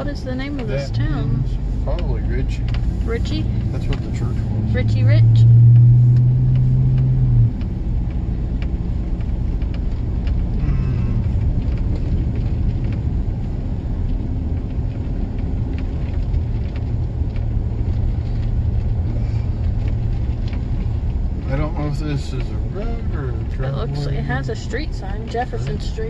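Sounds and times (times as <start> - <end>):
engine running low hum: 0.0 - 26.0
tyre and road noise: 0.0 - 26.0.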